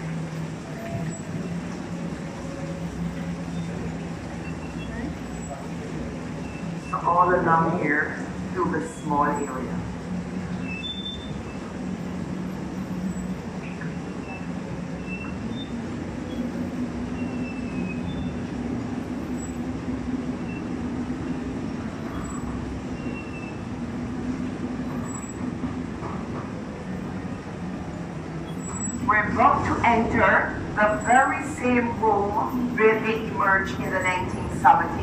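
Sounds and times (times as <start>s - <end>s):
tram running with low hum: 0.0s - 35.0s
faint high squeaks: 0.7s - 1.5s, 24.8s - 25.5s, 28.4s - 29.1s.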